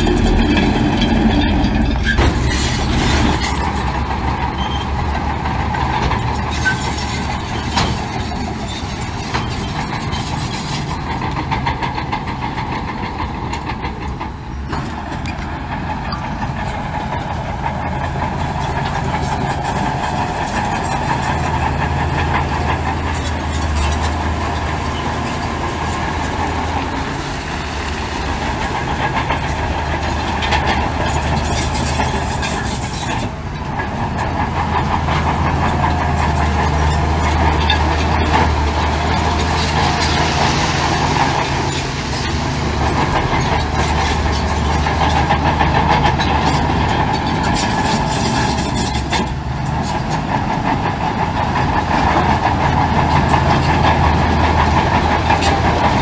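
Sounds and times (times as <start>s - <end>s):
diesel engine drone: 0.0s - 56.0s.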